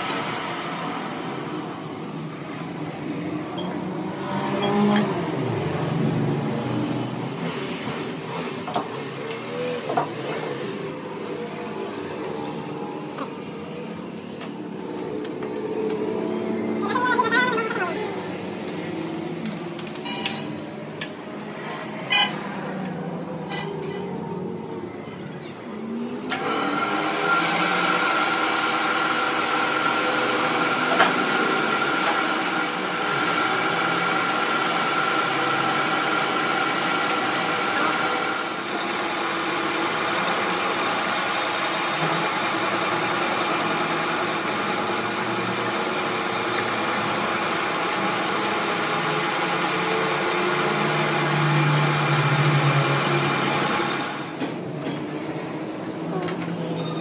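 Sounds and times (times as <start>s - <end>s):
metal lathe gears whining: 34.1s - 54.3s
tool cutting steel shaft: 35.2s - 48.6s, 50.4s - 53.7s
rapid ticking: 42.3s - 46.3s.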